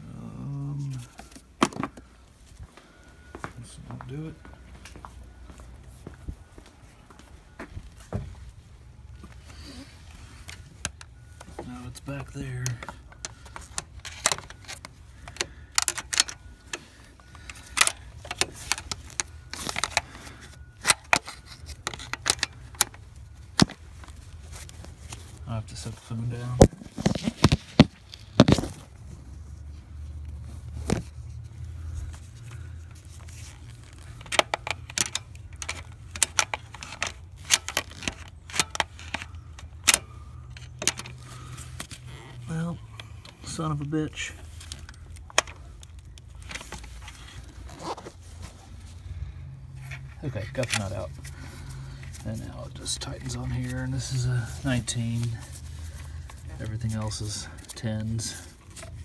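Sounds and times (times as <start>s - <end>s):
low steady hum: 0.0s - 59.0s
phone handling noise: 9.1s - 25.4s, 26.6s - 29.0s, 30.7s - 43.4s
screwdriver clicking on metal parts: 12.7s - 16.8s.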